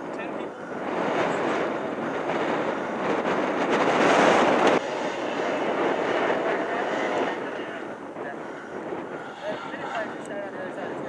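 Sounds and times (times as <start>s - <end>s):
distant dirt bike engine revving: 0.0s - 11.0s.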